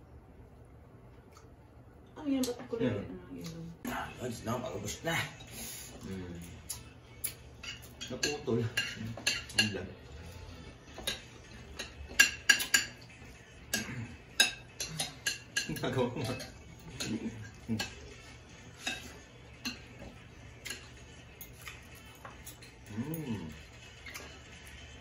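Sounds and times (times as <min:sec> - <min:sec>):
cutlery clinking on plates: 0:06.7 - 0:09.9, 0:10.9 - 0:22.9.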